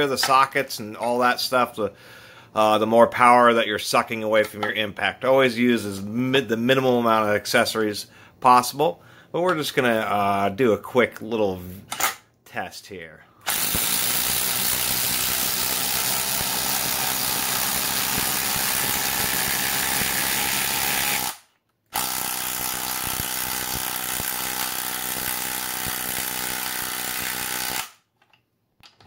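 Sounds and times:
impact tools hammering: 13.5s - 21.4s.

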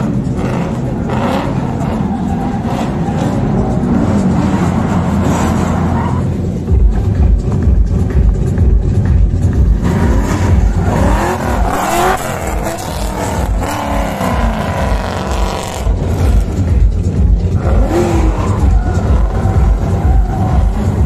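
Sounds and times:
vehicle engine revving: 0.0s - 21.0s.

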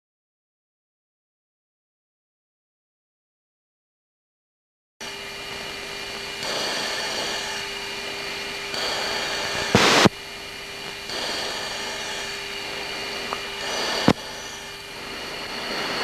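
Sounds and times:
radio hiss and static: 5.0s - 16.0s
faint steady tones: 5.1s - 16.0s.

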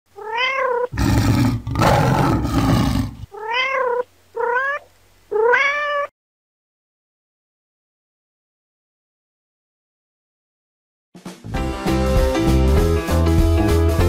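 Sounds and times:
cat meowing: 0.2s - 1.1s, 3.2s - 6.1s.

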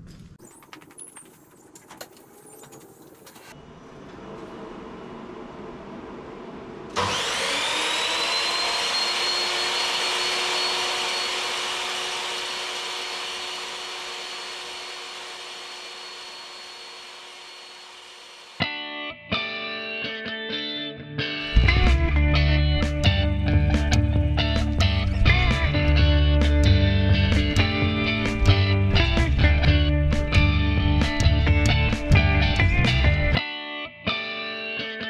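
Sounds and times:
table saw motor running: 6.9s - 18.6s
electric guitar music: 18.6s - 35.0s.

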